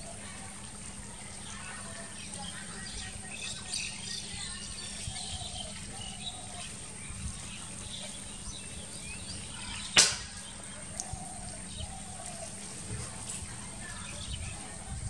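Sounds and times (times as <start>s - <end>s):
small birds chirping: 0.0s - 15.0s
sharp crack: 9.9s - 10.4s.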